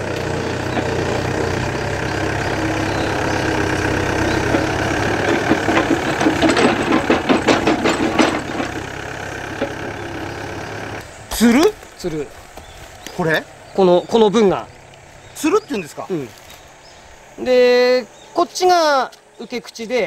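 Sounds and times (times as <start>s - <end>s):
diesel engine running: 0.0s - 18.4s
knocks and cracks: 4.5s - 8.9s.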